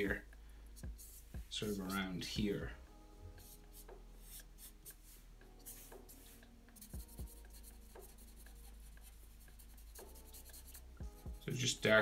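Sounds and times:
soft low thumps: 0.2 - 1.7, 7.0 - 7.5, 11.0 - 11.4
marker scratching on paper: 0.8 - 2.4, 3.4 - 11.4.

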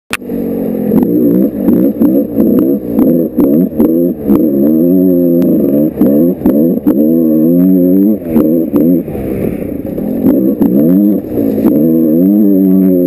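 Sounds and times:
dirt bike engine revving: 0.1 - 13.0.

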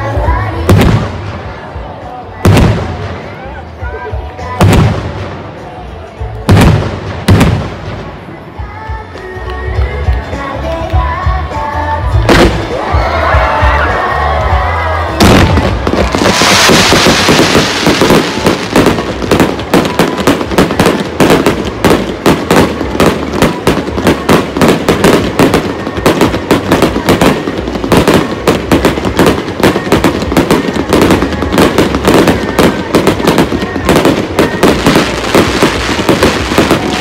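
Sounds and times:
fireworks crackling and popping: 0.0 - 37.0
fireworks hissing rush: 15.2 - 37.0.

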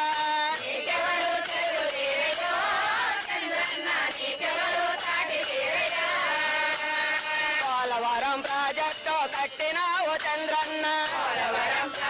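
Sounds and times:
women singing in unison: 0.0 - 7.8, 10.6 - 12.0.

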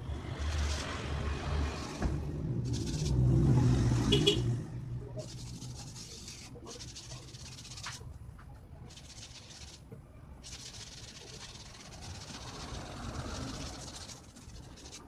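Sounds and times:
hand rubbing paint on styrofoam: 2.7 - 3.4, 5.2 - 8.1, 8.9 - 15.0.

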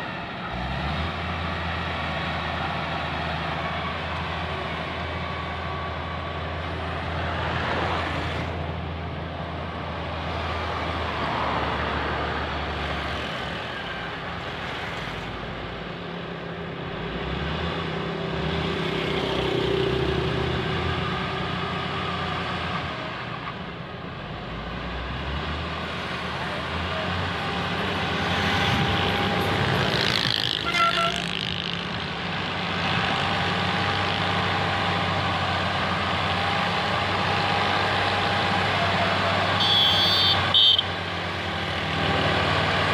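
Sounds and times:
diesel engine under load: 0.0 - 42.9.

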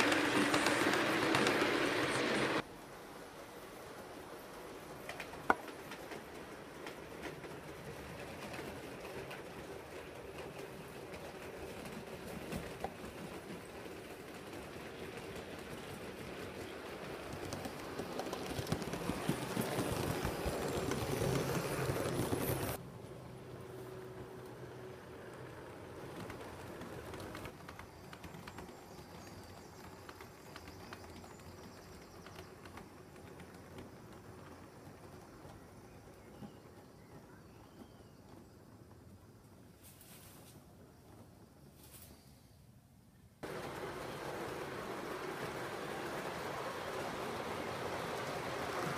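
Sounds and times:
model train rumbling on track: 0.0 - 39.8, 43.4 - 48.9.

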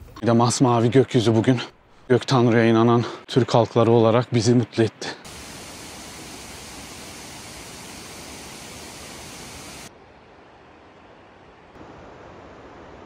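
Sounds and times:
water rushing: 5.2 - 9.9.

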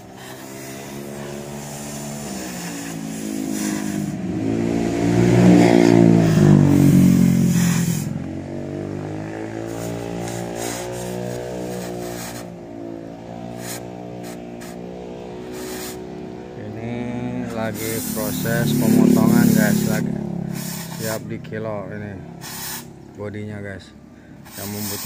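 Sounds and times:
cutting torch hissing: 0.0 - 4.4, 5.4 - 8.3, 9.4 - 12.6, 13.5 - 16.1, 17.4 - 21.4, 22.4 - 23.0, 24.4 - 25.0
vehicle engine passing: 0.0 - 25.0.

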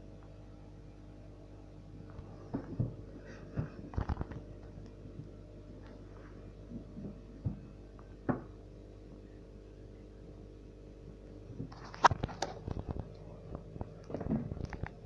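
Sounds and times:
aquarium equipment hum: 0.0 - 15.0.

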